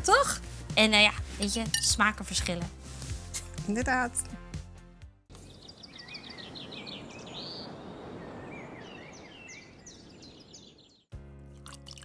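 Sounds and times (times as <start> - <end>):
birds chirping: 5.4 - 11.1.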